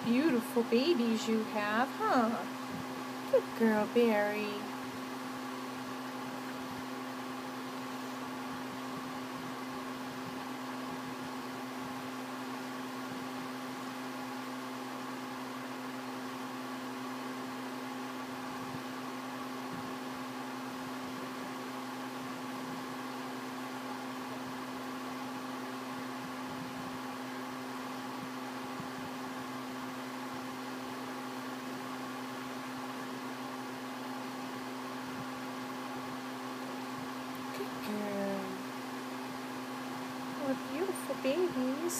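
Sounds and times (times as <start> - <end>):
electrical hum: 0.0 - 41.9.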